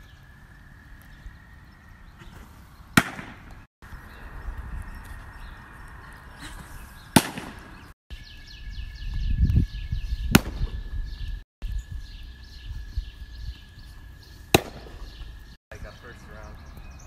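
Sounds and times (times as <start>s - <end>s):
baseball smacking into a mitt: 3.0s - 3.5s, 7.2s - 7.6s, 14.5s - 15.1s.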